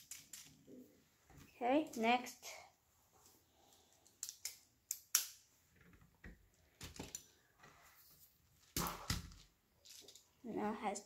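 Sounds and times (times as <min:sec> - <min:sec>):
plastic pieces clicking: 0:00.0 - 0:00.6, 0:04.0 - 0:05.4, 0:08.7 - 0:10.3
plastic pieces knocking and rattling: 0:00.0 - 0:00.7, 0:04.2 - 0:07.3, 0:08.6 - 0:10.4.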